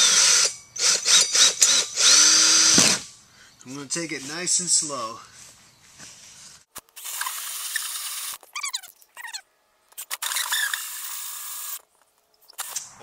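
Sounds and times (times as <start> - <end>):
drill hole saw cutting wood: 0.0 - 3.1, 10.0 - 11.8.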